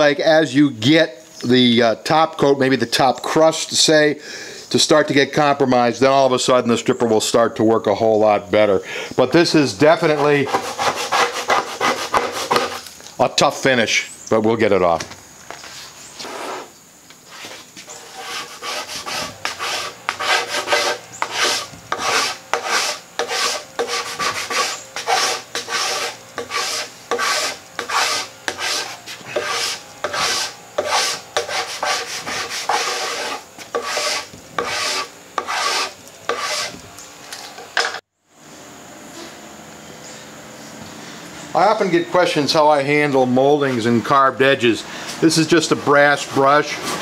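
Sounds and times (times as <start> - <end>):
hand scraper scraping wood: 9.8 - 12.9, 16.1 - 16.7, 17.3 - 36.8, 45.7 - 47.0.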